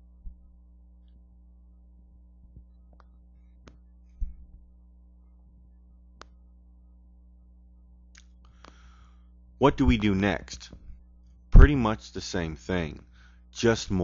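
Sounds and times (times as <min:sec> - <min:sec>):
low steady hum: 0:00.0 - 0:14.0
dull low thump: 0:04.2 - 0:04.7.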